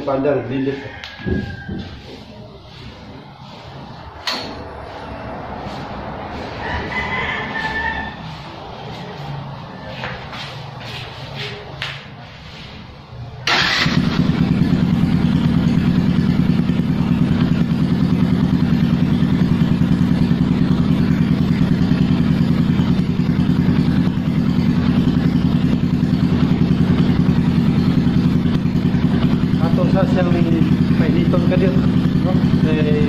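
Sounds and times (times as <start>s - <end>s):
electric starter: 13.4s - 14.4s
motorcycle engine idling: 13.4s - 33.0s.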